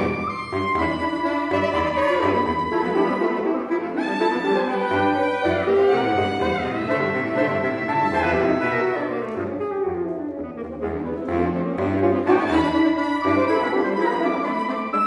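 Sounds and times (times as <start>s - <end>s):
saxophone quartet playing tango: 0.0s - 15.0s.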